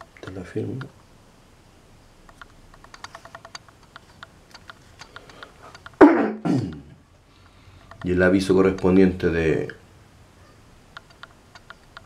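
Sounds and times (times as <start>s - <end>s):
faint light clicks: 2.2s - 6.0s, 10.9s - 12.0s.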